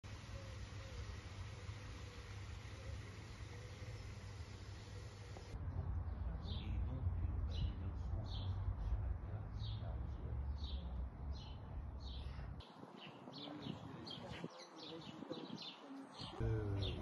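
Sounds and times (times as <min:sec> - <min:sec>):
small bird calling: 0:00.1 - 0:05.6.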